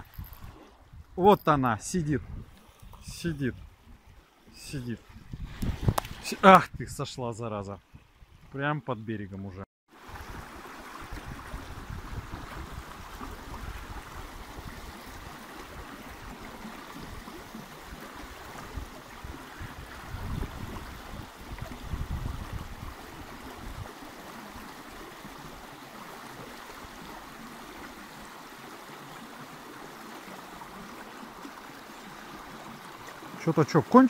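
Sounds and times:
stream water rushing: 0.0 - 6.7, 9.9 - 34.0.

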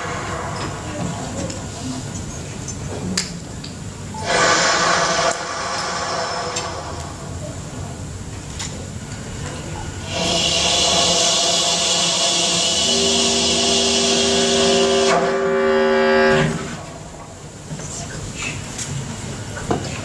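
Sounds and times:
conch shell blasts: 11.6 - 16.8
breathy bass clarinet: 12.6 - 16.8.

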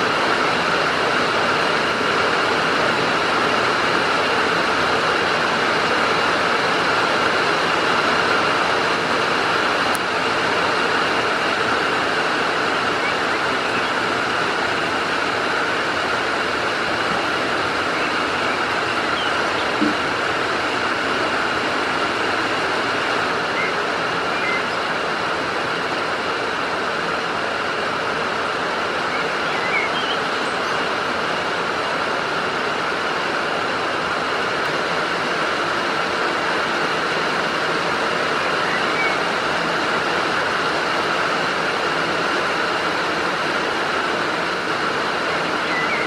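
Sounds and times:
heavy rain: 0.0 - 46.0
running water: 0.0 - 46.0.

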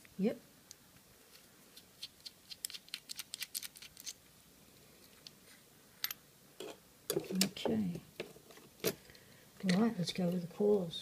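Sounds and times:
small metal clicks: 2.0 - 4.2.

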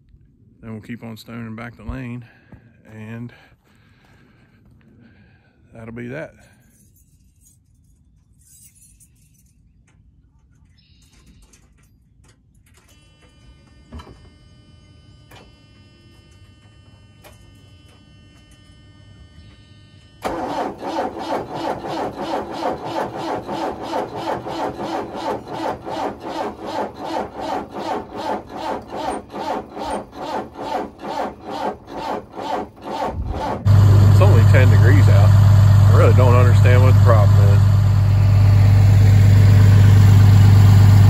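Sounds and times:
diesel engine cranking: 20.2 - 41.0.

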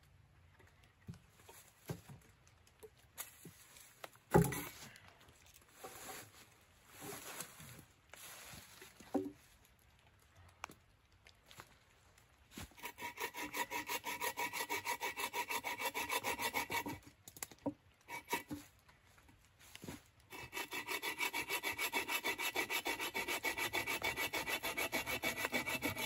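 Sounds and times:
log dragged through dry leaves: 5.6 - 9.7.

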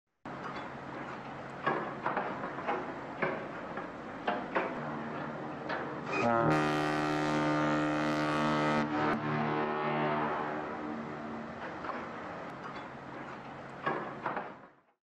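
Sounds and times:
loud low horn blast: 6.1 - 12.2.

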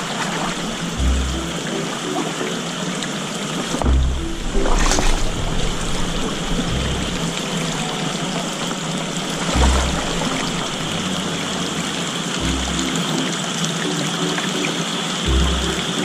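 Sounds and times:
water running and sloshing: 0.0 - 16.0
low thuds of steps in water: 3.6 - 11.3.

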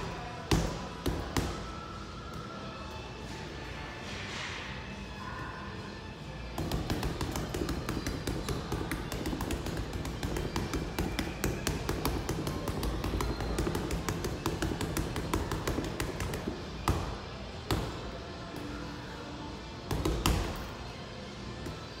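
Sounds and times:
boxing gloves punching heavy bag: 6.6 - 17.1.

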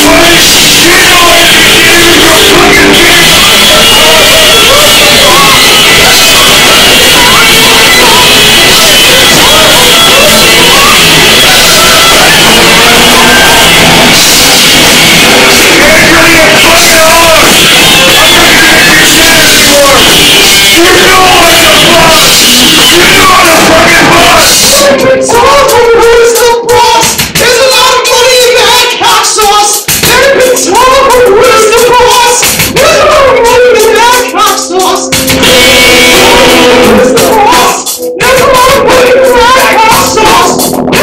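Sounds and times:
electric guitar: 0.0 - 27.2, 30.0 - 41.0
men singing: 0.0 - 41.0
rock band playing: 34.6 - 38.5, 39.2 - 41.0.

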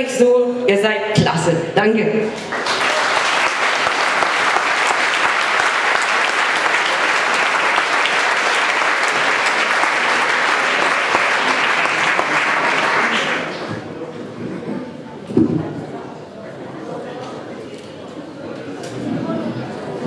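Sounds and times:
audience applauding: 2.4 - 14.0.

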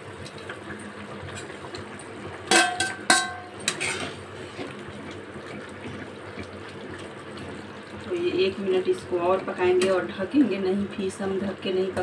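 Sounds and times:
curry boiling and bubbling: 0.0 - 12.0
steel utensils clinking on pot: 2.5 - 4.1.

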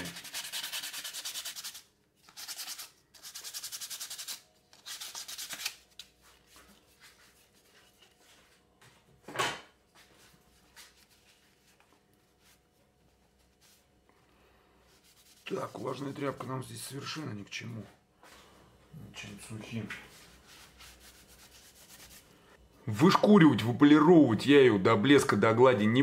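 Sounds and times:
sandpaper rubbing on wood: 0.0 - 5.6, 20.1 - 22.3.

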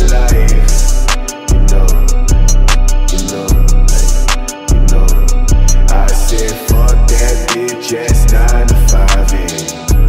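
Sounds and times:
deep sustained bass notes: 0.0 - 7.5.

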